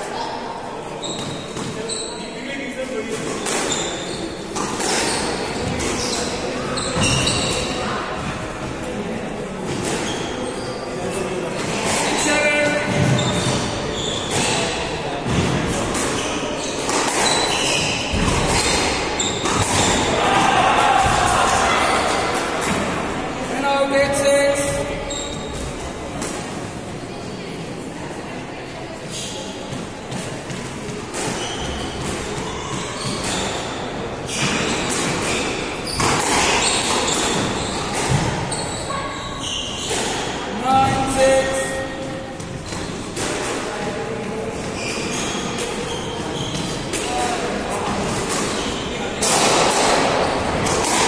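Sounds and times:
shoes squeaking on wooden floor: 0:01.0 - 0:02.4, 0:03.3 - 0:08.3, 0:12.2 - 0:14.7, 0:16.1 - 0:20.1, 0:24.2 - 0:25.8, 0:31.3 - 0:43.1, 0:44.5 - 0:47.3
squash ball hits: 0:03.3 - 0:06.0, 0:12.9 - 0:23.0, 0:34.3 - 0:38.5, 0:45.6 - 0:51.0
squash ball smacking: 0:18.1 - 0:20.2.

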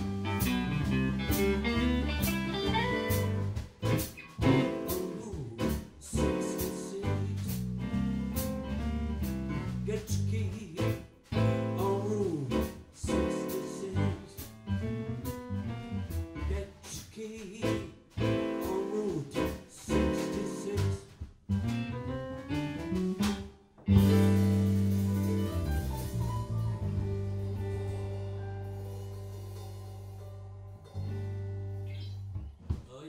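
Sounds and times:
band playing bluesy jazz: 0:00.0 - 0:32.6
piano: 0:00.0 - 0:33.0
person singing: 0:04.4 - 0:07.7, 0:11.7 - 0:14.5, 0:16.4 - 0:21.1.

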